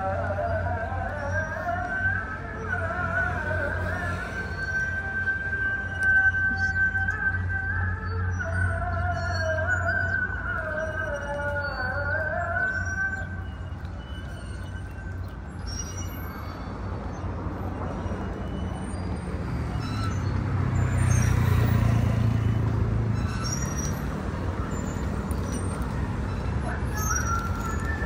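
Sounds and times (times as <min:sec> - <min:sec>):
road traffic: 0:00.0 - 0:28.0
vehicle passing: 0:02.3 - 0:06.1, 0:16.7 - 0:28.0.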